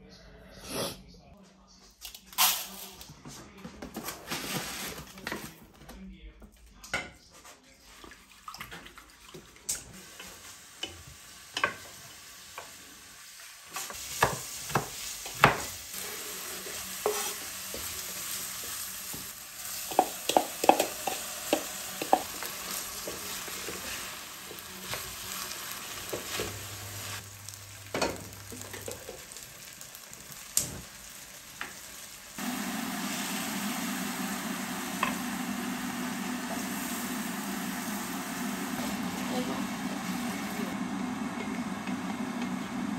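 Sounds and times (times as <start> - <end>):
food sizzling in a pan: 9.7 - 42.9.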